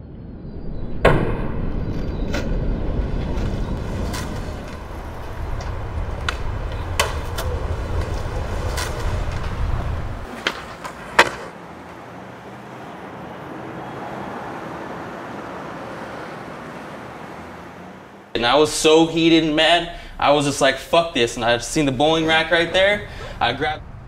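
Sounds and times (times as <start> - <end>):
skateboard wheels rolling on concrete: 1.7 - 13.6
skateboard clacks: 4.1 - 9.6, 10.2 - 11.6.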